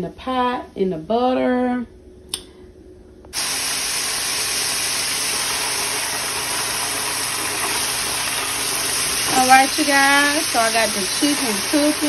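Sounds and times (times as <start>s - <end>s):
chicken frying in hot oil: 3.4s - 12.0s.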